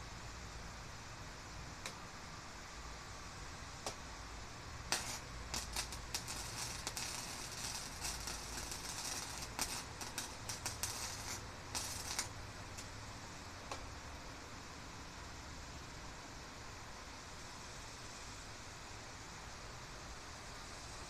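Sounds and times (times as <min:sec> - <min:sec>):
arc welder crackling and sputtering: 0:03.8 - 0:13.0.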